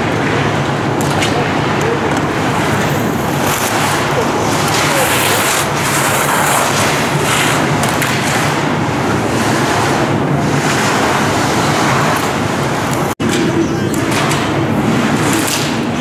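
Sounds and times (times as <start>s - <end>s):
steady rushing noise: 0.0s - 16.0s
skis scraping on hard snow: 2.2s - 13.0s.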